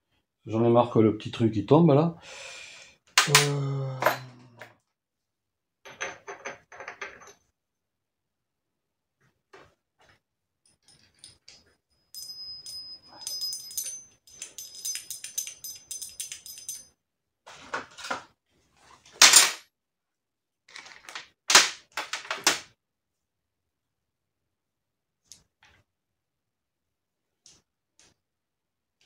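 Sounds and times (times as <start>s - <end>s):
metal parts clinking: 10.7s - 11.6s, 12.2s - 16.9s.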